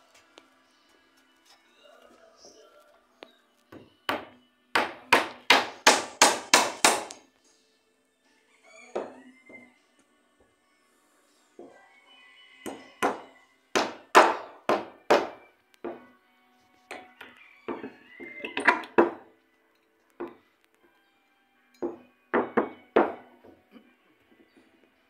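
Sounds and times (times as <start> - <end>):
hammer nailing wooden boards: 4.1 - 7.2, 13.8 - 16.0.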